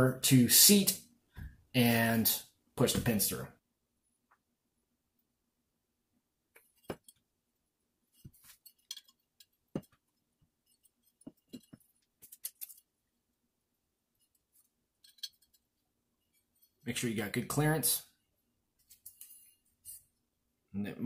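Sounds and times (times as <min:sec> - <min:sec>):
small metal parts clicking: 0:08.5 - 0:09.6, 0:10.6 - 0:12.9, 0:15.0 - 0:15.6.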